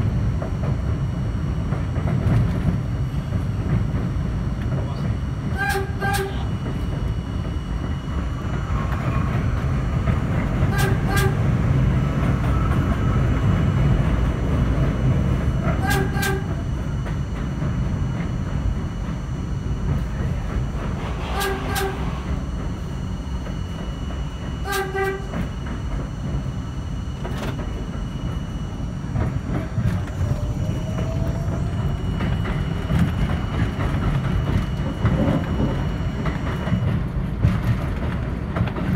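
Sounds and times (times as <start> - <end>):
subway train rumbling on track: 0.0 - 38.9
train horn short blasts: 5.5 - 6.5, 10.7 - 11.4, 15.8 - 16.6, 21.3 - 22.2, 24.6 - 25.3.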